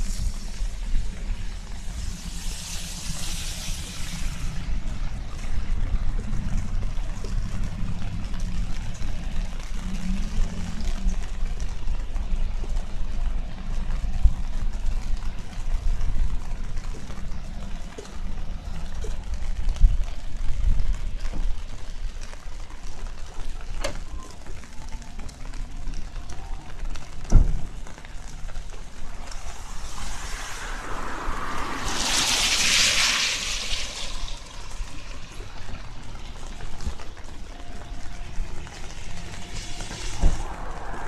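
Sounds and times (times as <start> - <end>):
brief hiss: 29.4 - 34.7.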